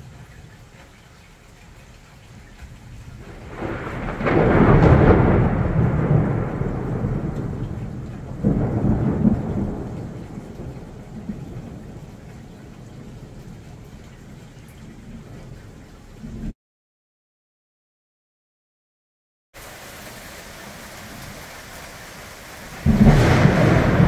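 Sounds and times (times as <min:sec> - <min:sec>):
thunder rolling: 0:03.2 - 0:12.0, 0:22.7 - 0:24.0.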